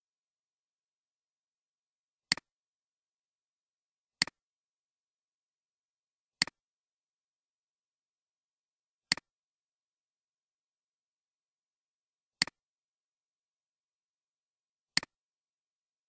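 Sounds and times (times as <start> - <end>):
computer mouse clicks: 2.3 - 2.5.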